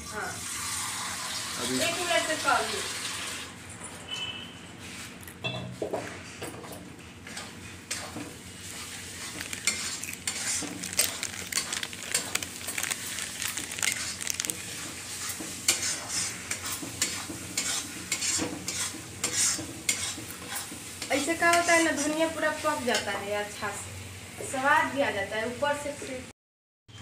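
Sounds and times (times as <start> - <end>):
food sizzling in a pan: 0.0 - 3.5, 7.9 - 26.3
spatula scraping a pan: 7.4 - 10.8, 13.9 - 22.3.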